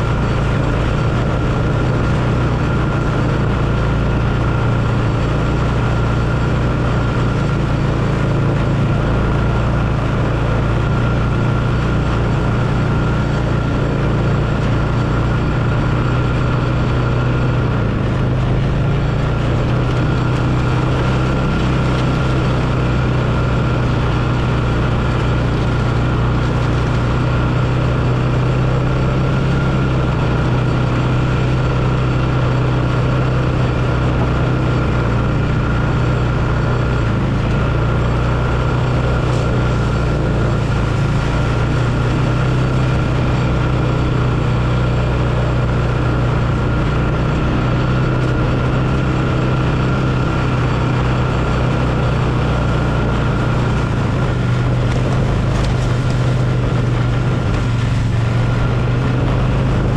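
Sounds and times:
atv engine running: 0:00.0 - 0:59.9.

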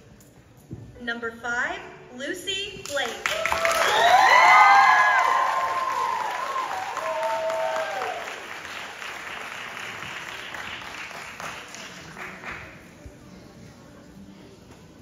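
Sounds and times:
audience applauding and cheering: 0:03.2 - 0:12.8
high voices whooping: 0:03.3 - 0:08.4.

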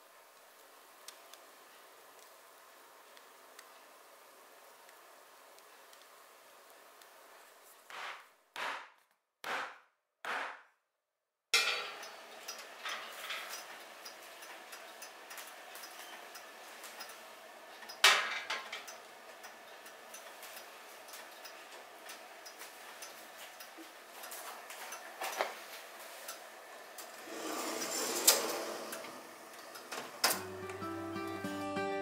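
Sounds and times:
metal pans clanking: 0:11.6 - 0:12.0.

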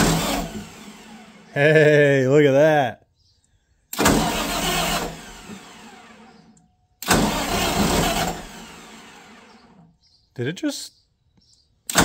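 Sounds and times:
diesel engine cranking: 0:00.0 - 0:01.7, 0:03.9 - 0:10.0.

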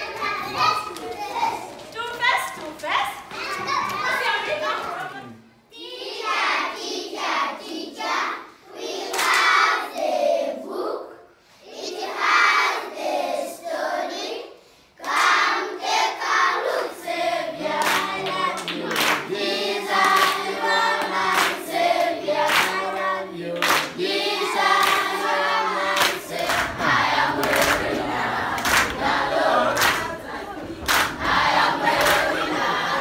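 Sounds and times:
children singing in chorus: 0:05.8 - 0:33.0
hands clapping in rhythm: 0:09.0 - 0:10.1, 0:15.0 - 0:15.4, 0:17.6 - 0:33.0.

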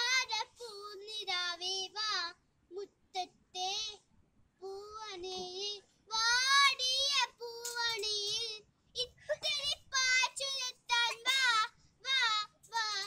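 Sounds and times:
girl singing unaccompanied: 0:00.0 - 0:13.0.

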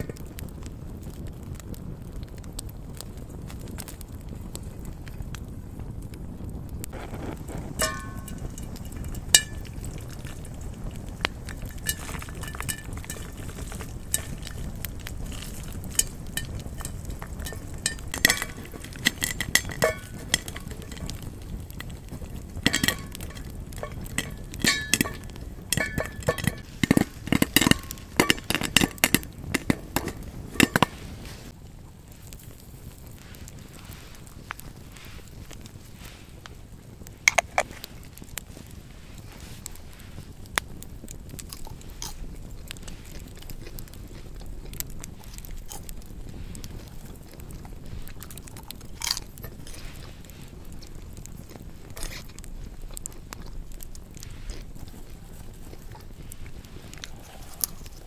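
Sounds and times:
cookware clinking together: 0:07.8 - 0:08.7, 0:16.0 - 0:21.1, 0:22.6 - 0:30.9.

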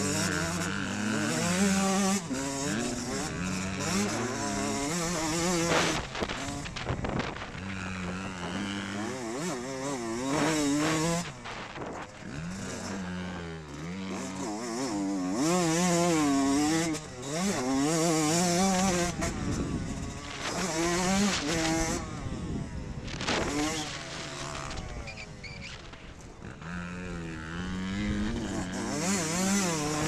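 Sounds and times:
dirt bike engine revving: 0:00.0 - 0:30.0
wind noise: 0:03.4 - 0:12.7, 0:18.7 - 0:26.6.

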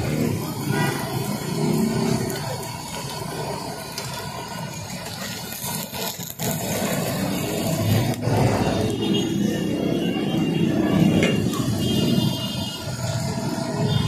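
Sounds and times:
eggs frying on griddle: 0:00.0 - 0:09.0
vehicle engines running: 0:00.0 - 0:14.0.

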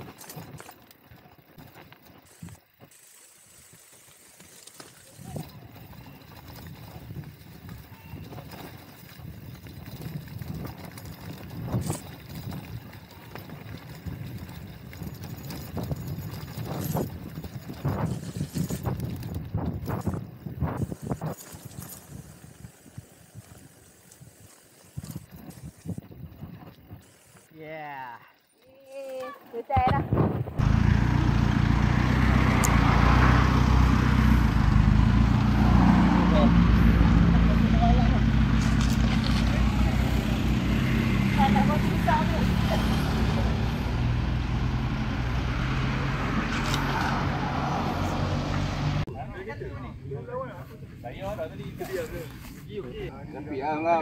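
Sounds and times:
bike tyres rumbling on dirt: 0:00.0 - 0:27.5, 0:29.7 - 0:48.6
vehicle engine running: 0:30.6 - 0:49.1.

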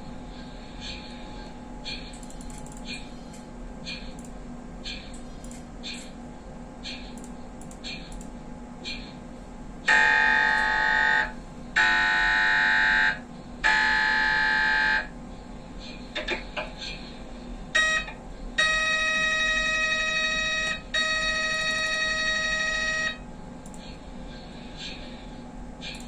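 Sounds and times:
mri scanner buzzing tones: 0:09.8 - 0:15.2, 0:17.7 - 0:23.3.

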